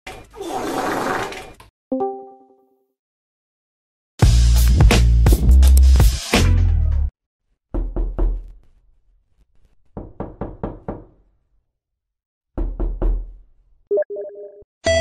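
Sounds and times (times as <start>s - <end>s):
knocking: 10.0s - 11.2s.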